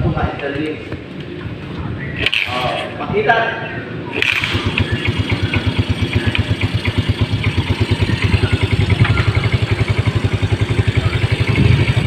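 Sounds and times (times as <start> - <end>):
scooter engine idling: 4.0 - 12.0.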